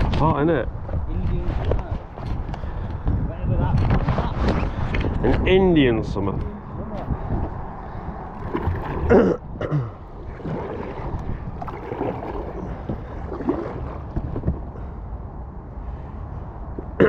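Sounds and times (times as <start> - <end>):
wind rumbling on microphone: 0.0 - 17.0
paddles splashing in water: 8.3 - 9.4, 10.1 - 14.8.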